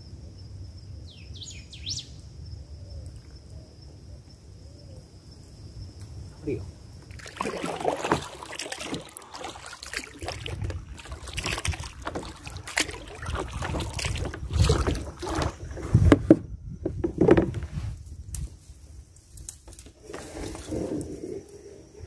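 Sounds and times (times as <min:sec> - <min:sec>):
paddle splashing in river water: 0:07.0 - 0:18.0.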